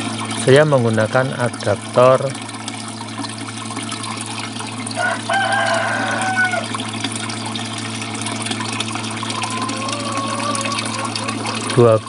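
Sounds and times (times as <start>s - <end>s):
water pump humming: 0.0s - 12.0s
rooster crowing: 5.0s - 6.7s, 9.4s - 11.7s.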